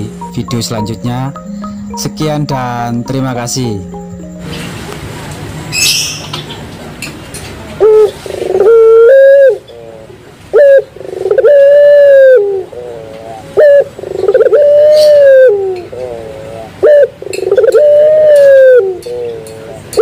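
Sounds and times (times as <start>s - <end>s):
dove cooing loudly: 7.8s - 20.0s.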